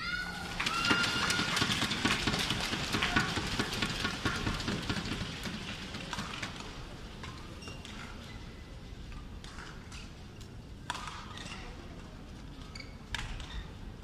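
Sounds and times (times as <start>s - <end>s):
crowd clapping and cheering: 0.0s - 6.6s
racket hitting shuttlecock: 10.8s - 11.5s.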